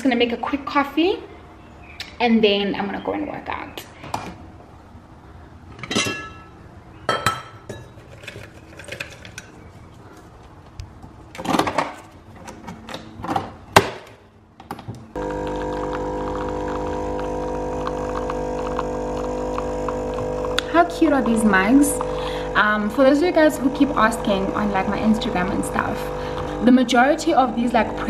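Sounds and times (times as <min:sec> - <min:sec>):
coffee machine pump droning: 0:15.2 - 0:28.0.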